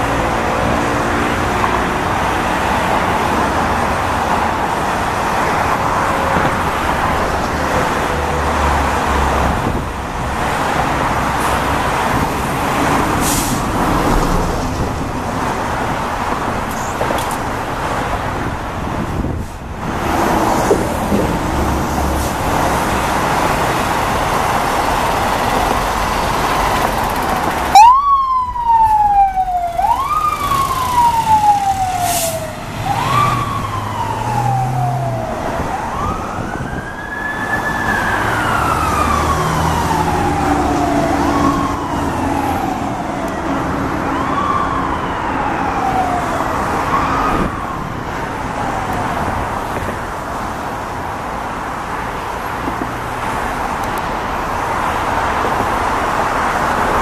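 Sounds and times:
electronic siren rising and falling: 0:27.7 - 0:47.9.

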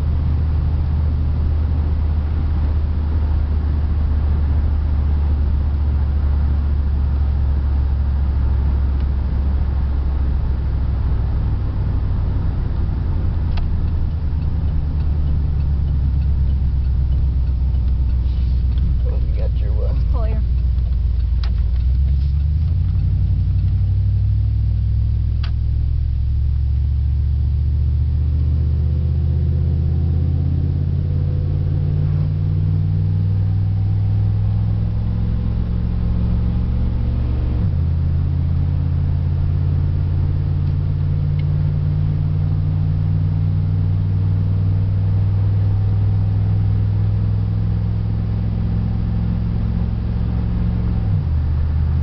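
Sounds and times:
pickup engine pulling: 0:00.0 - 0:52.0.

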